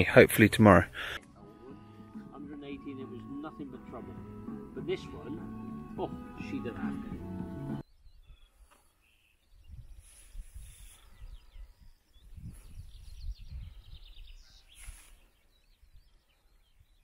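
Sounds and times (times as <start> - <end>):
small birds chirping and trilling: 4.8 - 17.0
wind gusting on microphone: 9.6 - 14.6.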